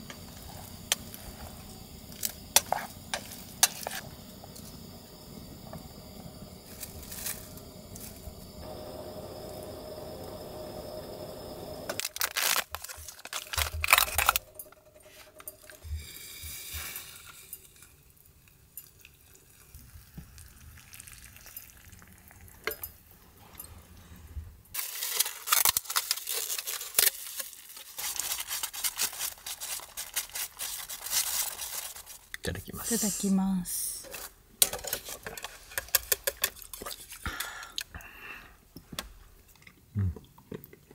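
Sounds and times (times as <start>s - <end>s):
gas burner hissing: 0.0s - 18.4s
water pouring into cup: 18.8s - 22.7s.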